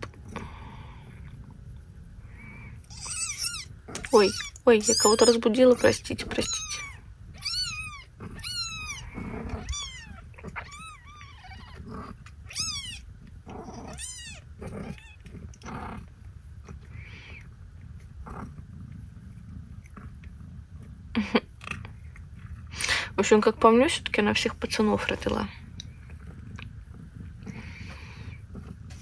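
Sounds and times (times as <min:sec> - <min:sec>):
low steady rumble: 0:00.0 - 0:29.0
kittens mewing: 0:02.3 - 0:15.7.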